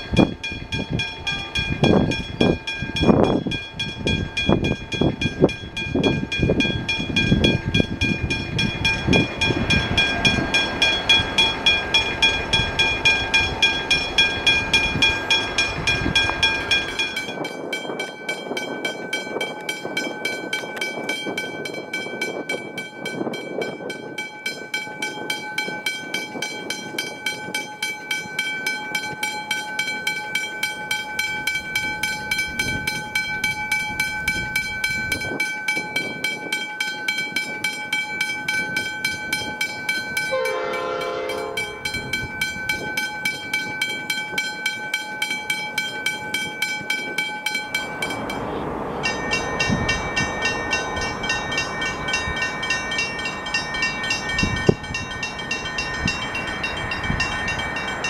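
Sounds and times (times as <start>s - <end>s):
level crossing bells ringing: 0.0s - 58.0s.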